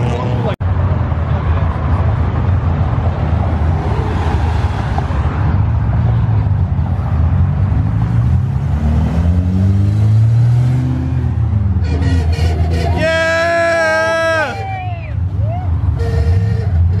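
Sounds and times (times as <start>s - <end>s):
traffic rumble: 0.0s - 17.0s
car engines pulling away: 1.8s - 14.5s
engine revving up: 7.7s - 11.6s.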